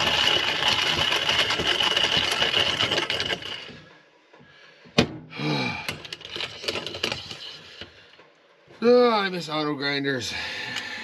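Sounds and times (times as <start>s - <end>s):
hand coffee grinder crunching beans: 0.0s - 3.9s, 6.0s - 7.8s.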